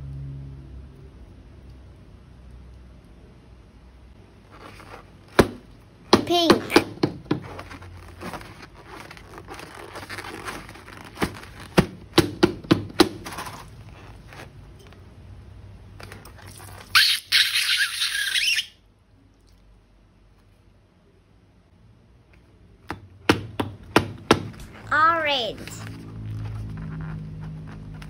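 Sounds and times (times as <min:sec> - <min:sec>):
balloons squeaking: 0:06.2 - 0:14.6, 0:16.4 - 0:18.8.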